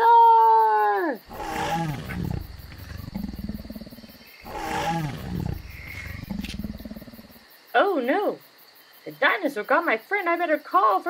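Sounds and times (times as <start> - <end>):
toy dinosaur electronic roar: 1.3 - 7.3.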